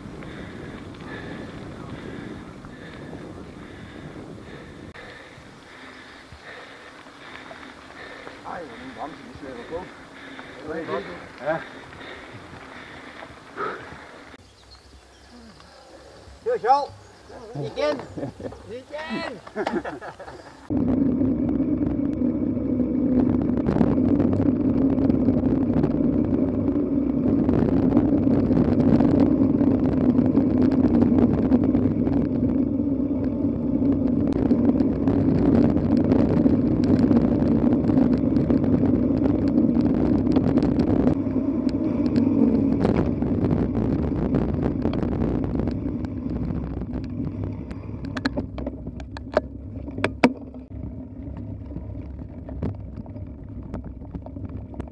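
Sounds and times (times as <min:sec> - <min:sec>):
bike rattling over bumps: 0:00.0 - 0:15.0, 0:16.2 - 0:54.9
bike tyres humming on tarmac: 0:00.0 - 0:54.9
rushing wind: 0:00.0 - 0:54.9
sharp clicks and knocks: 0:46.8 - 0:50.7.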